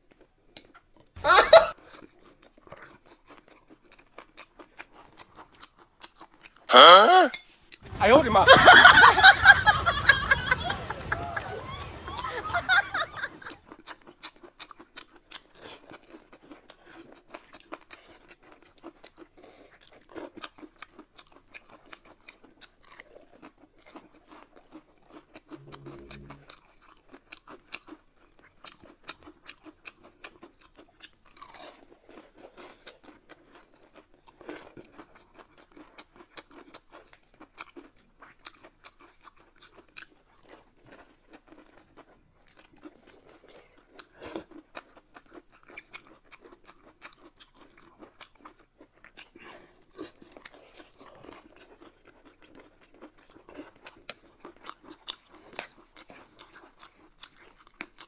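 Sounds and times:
crunchy wet chewing: 0.0s - 6.7s, 9.8s - 58.0s
brief low hum: 25.6s - 26.5s.

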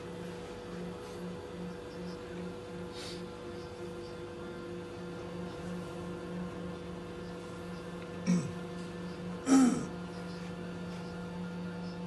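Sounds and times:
vending machine humming: 4.4s - 12.0s.

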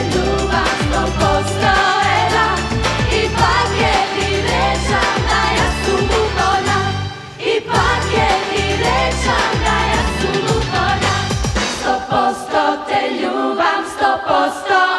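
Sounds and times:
backing track with beat and bass: 0.0s - 7.0s, 7.7s - 12.5s
female group singing pop song: 0.0s - 14.9s.

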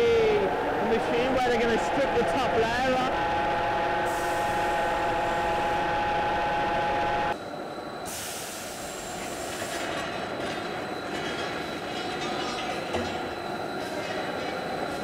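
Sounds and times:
peeling machine whining: 0.0s - 7.4s.

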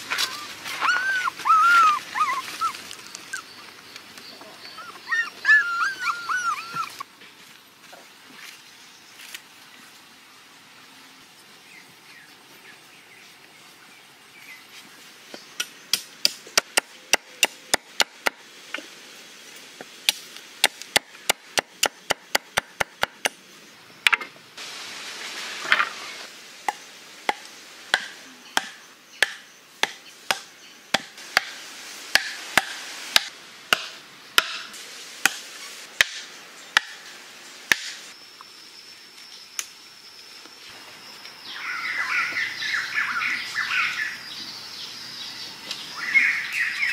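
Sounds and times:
chopping strikes on wooden sticks: 26.7s - 31.5s, 32.1s - 35.4s, 36.0s - 37.0s, 37.7s - 38.0s.

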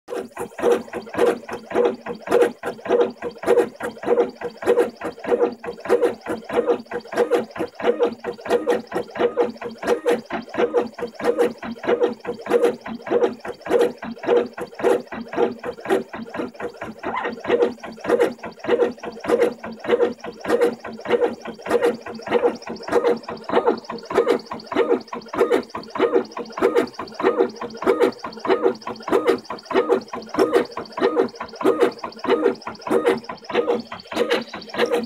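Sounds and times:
stepper motors whirring in bursts: 0.1s - 35.0s.

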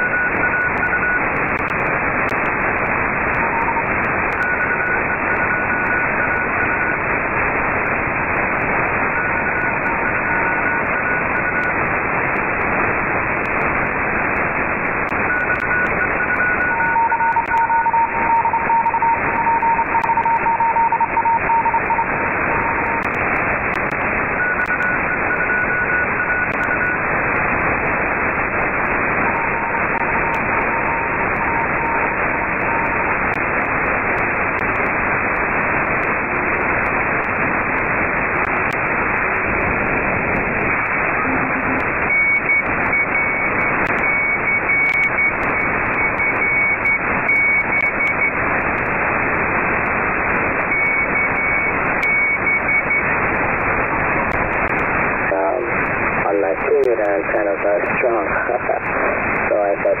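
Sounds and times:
radio whistle tones: 0.0s - 1.8s, 3.3s - 7.0s, 14.4s - 27.1s, 28.2s - 33.7s, 40.4s - 60.0s
radio receiver hiss: 0.0s - 60.0s.

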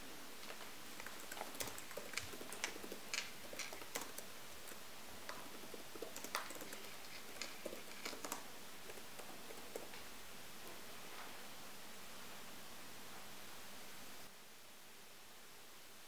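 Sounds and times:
faint steady hiss: 0.0s - 16.0s
computer keyboard typing: 1.0s - 10.1s.

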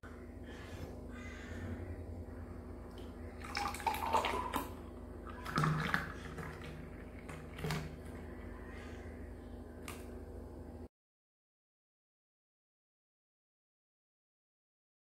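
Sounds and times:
drink pouring into a glass: 3.4s - 8.2s.

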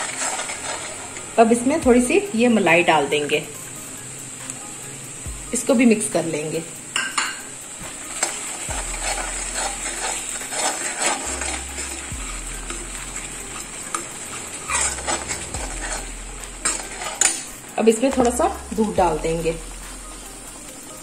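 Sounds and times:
metal spatula scraping pan: 0.0s - 1.7s, 7.0s - 19.5s
paste sizzling: 0.0s - 21.0s.

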